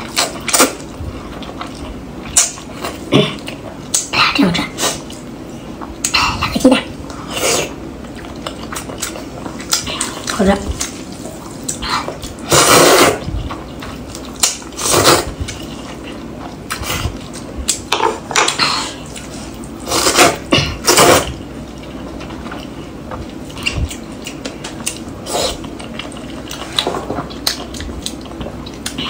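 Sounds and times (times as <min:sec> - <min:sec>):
person slurping noodles: 0:07.2 - 0:07.8, 0:12.5 - 0:13.3, 0:14.8 - 0:15.4, 0:19.8 - 0:21.3
chewing: 0:08.0 - 0:20.2, 0:20.9 - 0:29.0.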